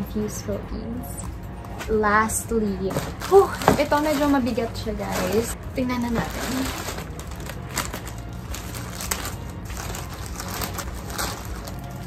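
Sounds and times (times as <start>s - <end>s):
plastic crinkling: 2.9s - 12.0s.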